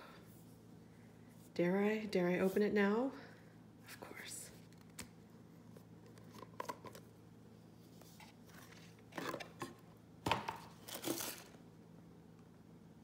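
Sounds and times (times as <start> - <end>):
plastic lid scraping and rustling: 8.0 - 9.8.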